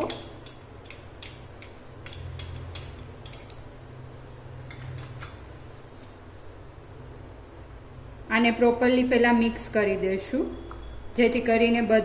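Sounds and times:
metal spoon tapping glass bowl: 0:00.0 - 0:03.6.

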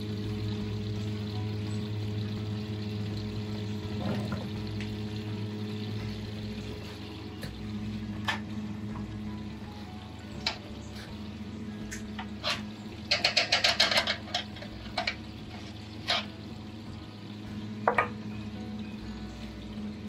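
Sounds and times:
steady low hum: 0:00.0 - 0:20.0
metal clinks and knocks: 0:12.4 - 0:15.2.

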